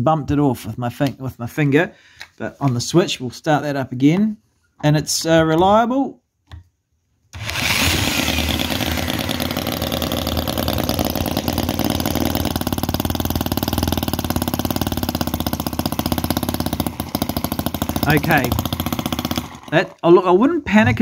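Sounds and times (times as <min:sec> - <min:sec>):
model engine running: 0:07.4 - 0:20.0.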